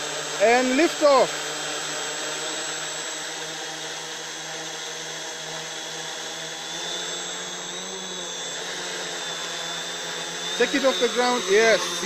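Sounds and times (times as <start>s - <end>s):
drone motors humming and whining: 0.0s - 12.0s.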